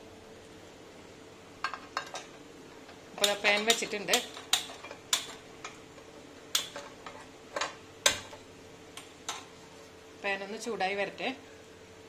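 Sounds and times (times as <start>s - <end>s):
pan and spatula clicks: 6.5s - 7.0s.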